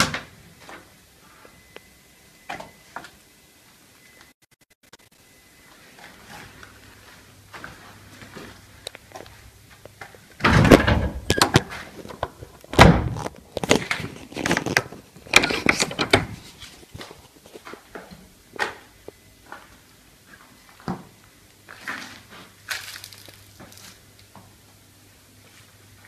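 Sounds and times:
door banging and slamming: 10.4s - 11.6s, 12.8s - 13.2s.

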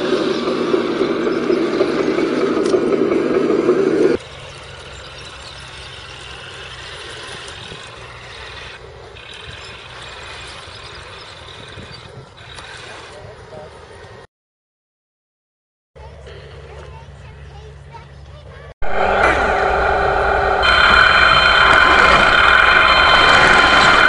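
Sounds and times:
electronic model tank engine sound: 4.2s - 13.2s.

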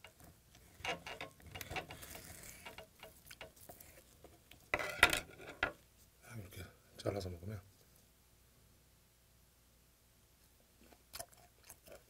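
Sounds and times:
knocks and scrapes on board: 0.0s - 5.8s.

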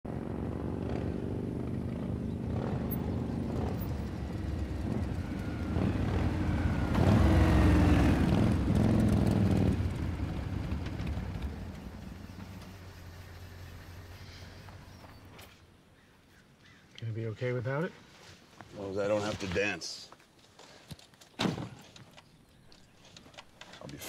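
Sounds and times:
motorcycle engines rumbling: 0.1s - 15.6s.

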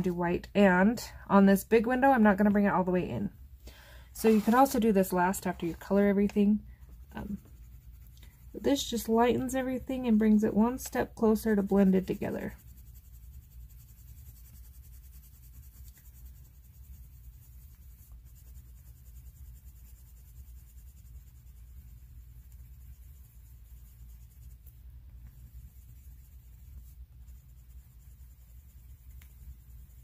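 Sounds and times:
pencil scratching on paper: 4.2s - 30.0s.

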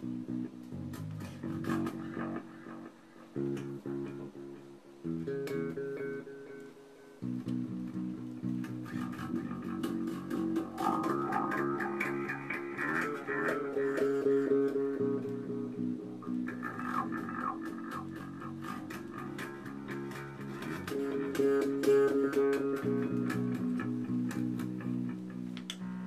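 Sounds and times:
electric bass with delay: 0.0s - 6.6s, 7.2s - 26.0s.

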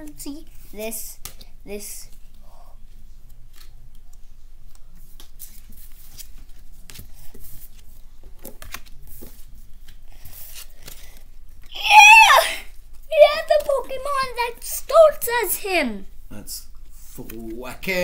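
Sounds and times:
trading cards rustling: 13.2s - 15.5s.

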